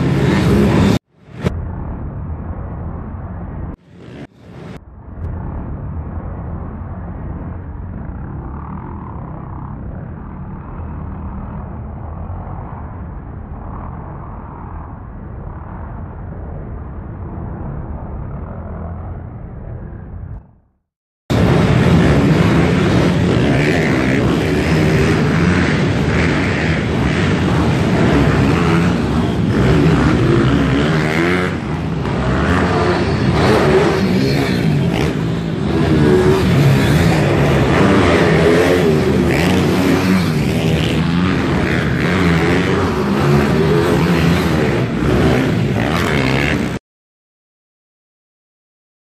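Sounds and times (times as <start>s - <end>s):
pit bike engines revving: 0.0s - 2.0s, 21.3s - 46.8s.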